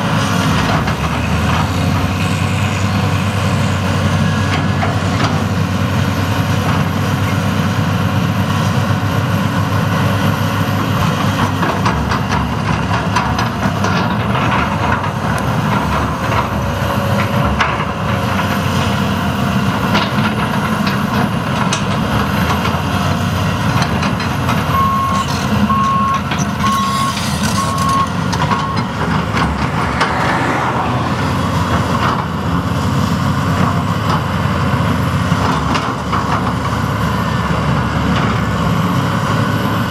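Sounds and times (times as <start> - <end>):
excavator diesel engine running: 0.0 - 39.9
backup alarm beeping: 24.7 - 28.9.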